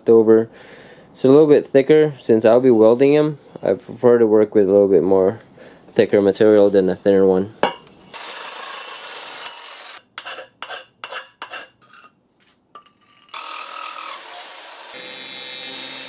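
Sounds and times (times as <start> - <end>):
reciprocating saw cutting metal pipe: 8.1 - 12.1, 13.0 - 16.0.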